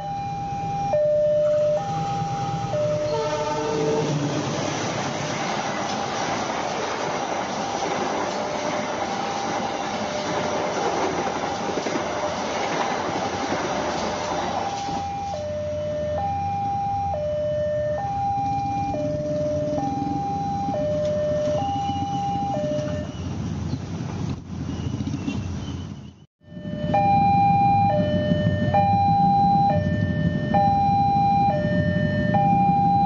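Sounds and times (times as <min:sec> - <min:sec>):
level crossing two-tone alarm: 0:00.0 - 0:04.0, 0:14.6 - 0:23.2, 0:26.4 - 0:33.0
passenger train rushing past: 0:00.1 - 0:25.9.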